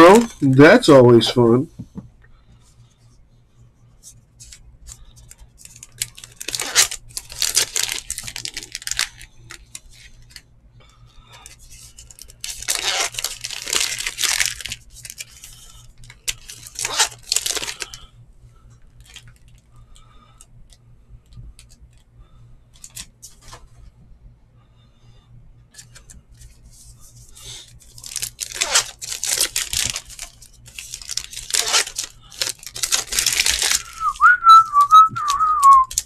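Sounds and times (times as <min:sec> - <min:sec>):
foil wrappers tearing and crinkling: 0:05.3 - 0:10.4, 0:11.8 - 0:18.0, 0:27.4 - 0:36.0
cards clicking: 0:31.0 - 0:36.0.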